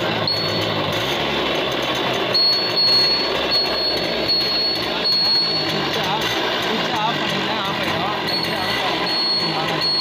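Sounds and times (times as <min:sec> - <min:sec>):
high thin indicator beeping: 0:00.0 - 0:01.1, 0:02.2 - 0:06.3, 0:08.1 - 0:10.0
small moped engine running: 0:00.0 - 0:10.0.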